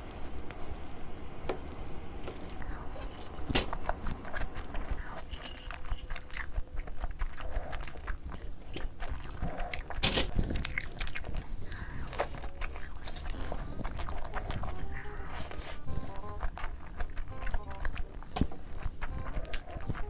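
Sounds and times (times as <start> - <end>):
noodles slurped and chewed: 0.0 - 20.0
wet mouth clicks and smacks: 5.8 - 14.9.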